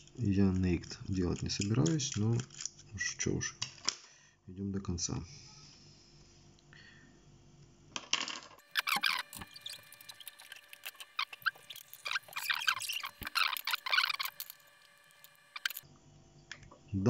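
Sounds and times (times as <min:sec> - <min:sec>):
small parts clicking and scraping: 0:00.0 - 0:04.0, 0:08.0 - 0:15.8.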